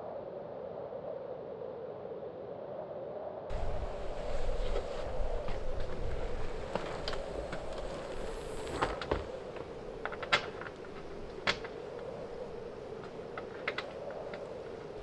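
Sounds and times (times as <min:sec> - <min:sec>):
hinges clicking and creaking: 0:03.5 - 0:15.0
steady low hum: 0:03.5 - 0:15.0.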